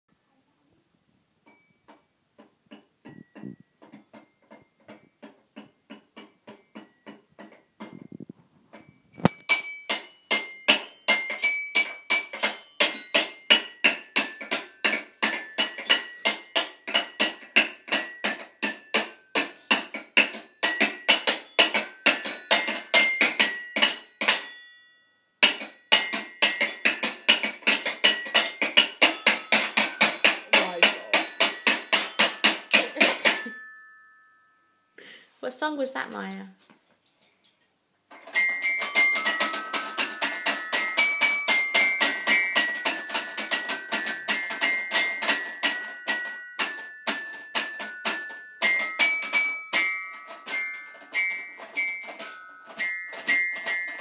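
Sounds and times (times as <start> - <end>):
toy xylophone struck with mallet: 9.2 - 35.1, 38.2 - 54.0.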